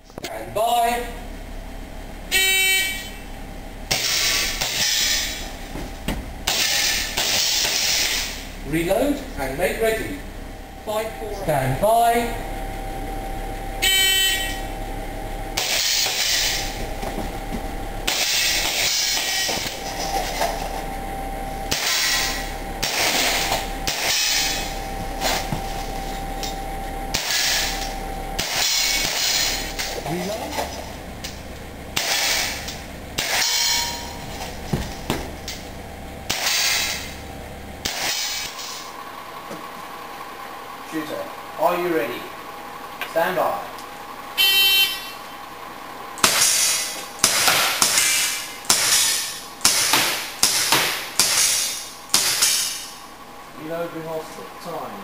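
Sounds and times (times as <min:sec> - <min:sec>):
shot timer beep: 0:13.8 - 0:14.7.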